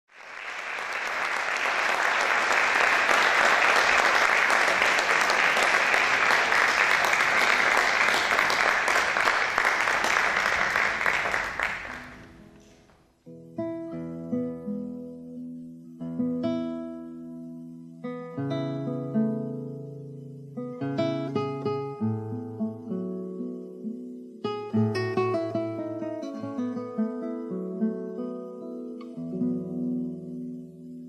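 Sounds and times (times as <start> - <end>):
audience applause: 0.0 - 12.9.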